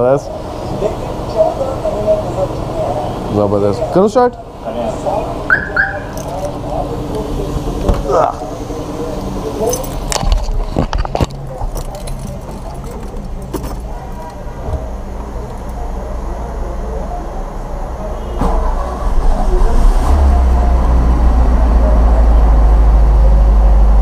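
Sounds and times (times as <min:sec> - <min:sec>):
car engine running: 0:00.0 - 0:18.0.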